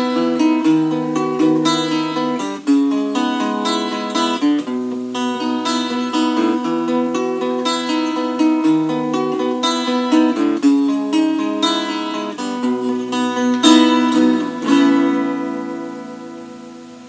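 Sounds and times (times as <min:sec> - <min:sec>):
fingerstyle acoustic guitar: 0:00.0 - 0:17.0.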